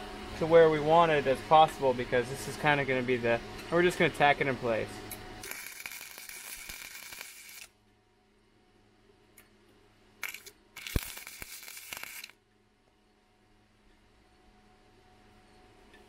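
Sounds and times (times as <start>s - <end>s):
welding arc crackling and hissing: 5.4s - 7.7s, 10.2s - 12.4s.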